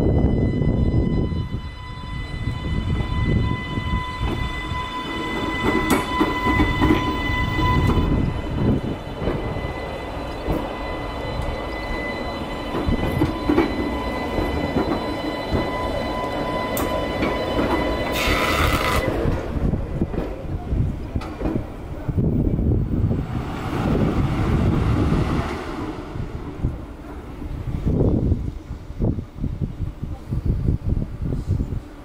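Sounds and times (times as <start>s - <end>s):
train rumbling: 0.0s - 32.0s
electric whine: 18.0s - 19.2s.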